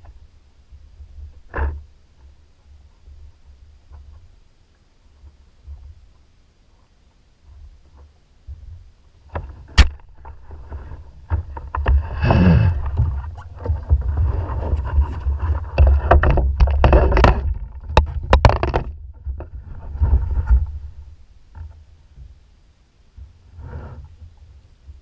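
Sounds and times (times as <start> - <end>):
knocks and scraping on kayak hull: 5.2 - 22.4
wind rumble on microphone: 7.5 - 22.4.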